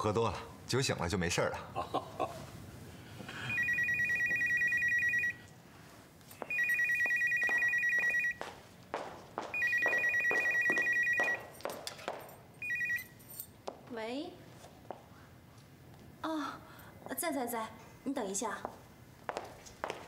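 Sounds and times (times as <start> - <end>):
telephone warbling ring: 3.5 - 5.4, 6.5 - 8.4, 9.6 - 11.5, 12.6 - 13.2.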